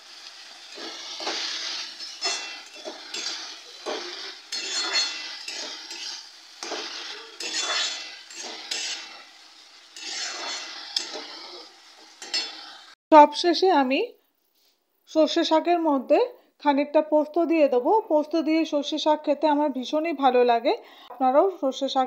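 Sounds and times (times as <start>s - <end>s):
metal spatula scraping in pan: 0.0s - 13.0s.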